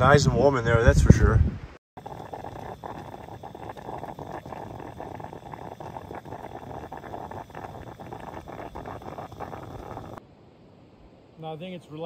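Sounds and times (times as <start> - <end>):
coffee percolator bubbling: 2.0 - 10.2.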